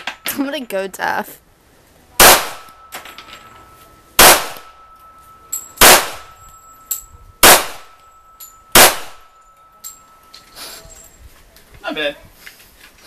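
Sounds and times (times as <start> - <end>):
pistol shots with echo: 2.2 - 3.0, 4.2 - 4.9, 5.8 - 6.4, 7.4 - 8.0, 8.7 - 9.4.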